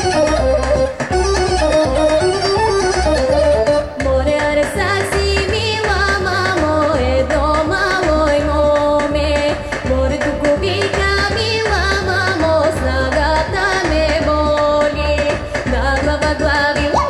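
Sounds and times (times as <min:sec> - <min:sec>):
instrumental backing with bass beat: 0:00.0 - 0:17.0
woman singing into a microphone: 0:03.9 - 0:17.0.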